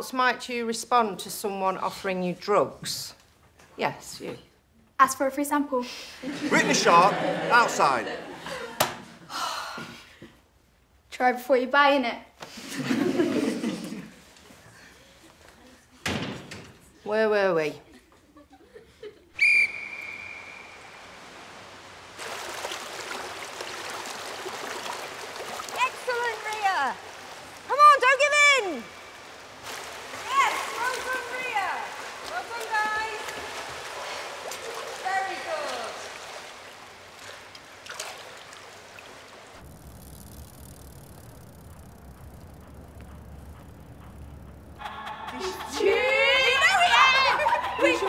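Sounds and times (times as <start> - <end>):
pool water splashing: 6.1 - 10.2, 12.4 - 15.6, 18.5 - 48.0
street ambience rumble: 39.6 - 46.9.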